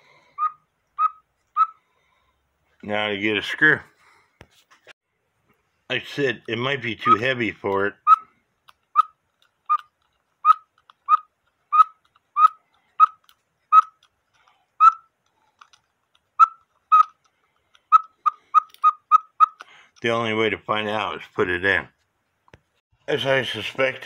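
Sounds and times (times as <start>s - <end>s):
squeaky bellows chirps: 0.4s - 1.8s, 8.0s - 14.0s, 14.8s - 15.2s, 16.3s - 19.7s.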